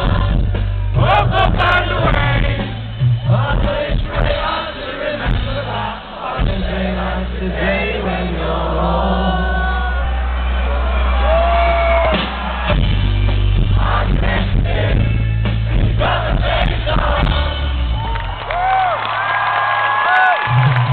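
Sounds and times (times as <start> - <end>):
live rock band playing: 0.0 - 7.4, 11.2 - 18.7
crowd singing along and whooping: 0.0 - 20.9.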